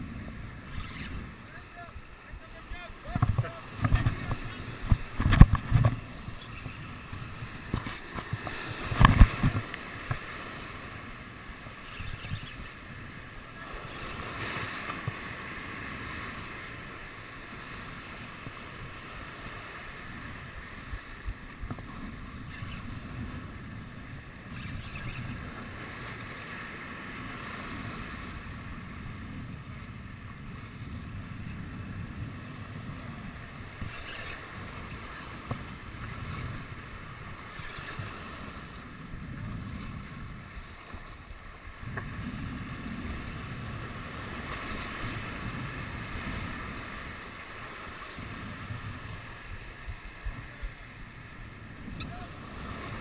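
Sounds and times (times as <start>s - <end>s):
wind buffeting microphone: 0.0s - 16.3s, 27.2s - 53.0s
sea waves breaking against rocks: 0.1s - 53.0s.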